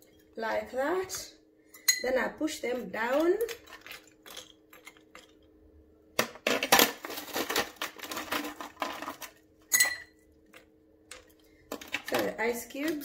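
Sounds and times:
spoon clinking glassware: 0:01.8 - 0:02.1, 0:09.7 - 0:10.1.

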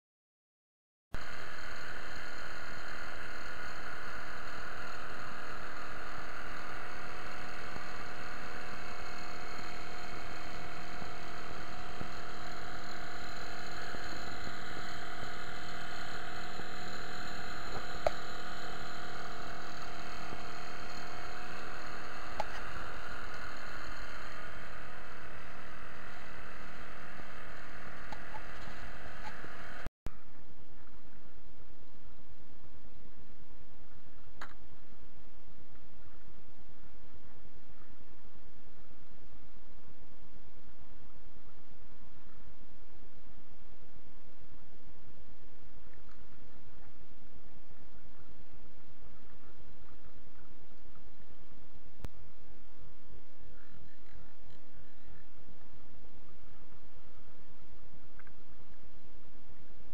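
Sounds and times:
outboard motor humming: 0:01.2 - 0:29.9.

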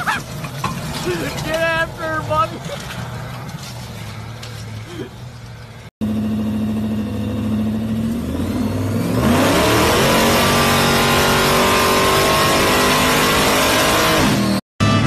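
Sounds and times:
engine revving on a dynamometer: 0:06.0 - 0:15.0.

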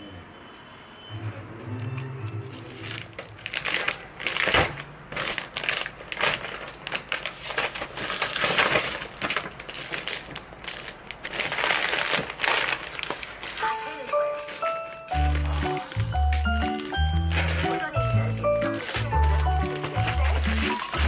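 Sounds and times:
packaging crinkling and rustling: 0:02.5 - 0:21.0.

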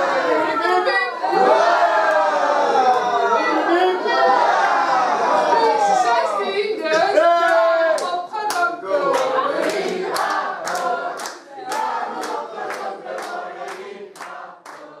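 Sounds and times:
group of people singing: 0:00.0 - 0:15.0
rhythmic clapping: 0:06.8 - 0:15.0.

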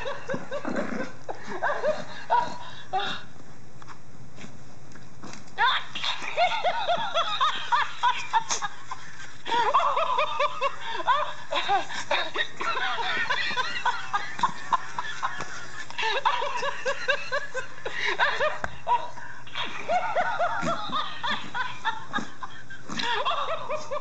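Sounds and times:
toy monkey laughing: 0:05.6 - 0:22.5.

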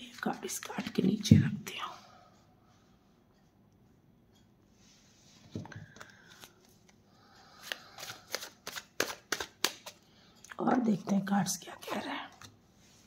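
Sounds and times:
cards shuffling: 0:05.9 - 0:07.0, 0:07.6 - 0:10.0.

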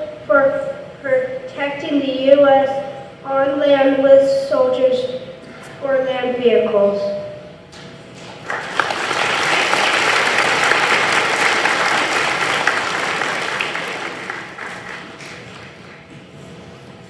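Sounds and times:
audience applause: 0:08.4 - 0:16.0.

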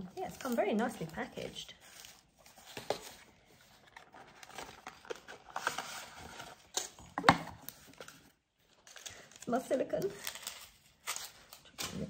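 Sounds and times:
packaging rustling and scraping: 0:00.0 - 0:12.0.

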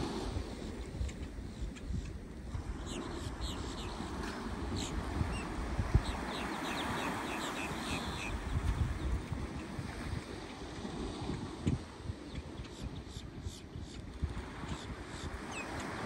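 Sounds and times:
surf washing onto beach: 0:00.0 - 0:00.9
wind buffeting microphone: 0:00.0 - 0:16.0
gulls calling: 0:02.7 - 0:08.6.

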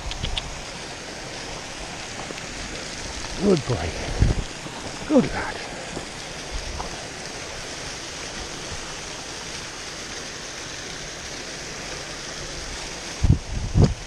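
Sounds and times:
stream rushing over stones: 0:00.0 - 0:14.0.

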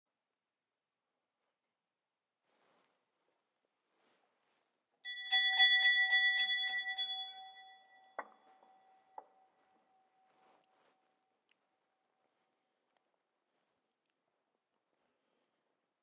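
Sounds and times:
small hand bells ringing: 0:05.1 - 0:09.0.

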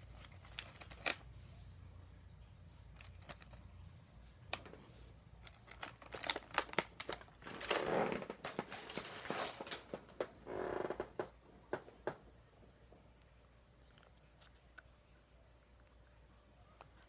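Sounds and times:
plastic wrapper crinkling: 0:00.0 - 0:01.2, 0:02.9 - 0:03.7, 0:05.4 - 0:10.4.

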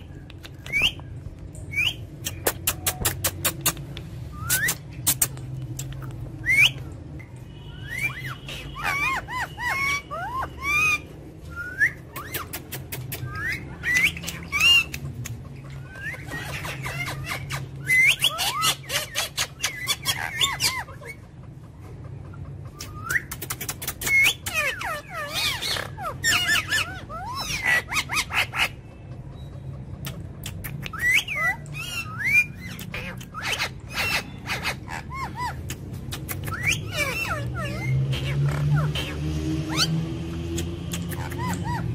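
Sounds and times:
parakeets whistled chirps: 0:00.0 - 0:03.2, 0:04.2 - 0:05.3, 0:06.4 - 0:15.0, 0:15.8 - 0:21.2, 0:22.7 - 0:29.6, 0:30.6 - 0:40.0, 0:40.6 - 0:41.9
parakeets harsh squawks: 0:07.4 - 0:11.2, 0:12.1 - 0:21.4, 0:23.7 - 0:29.3, 0:31.0 - 0:40.0, 0:40.8 - 0:41.9.

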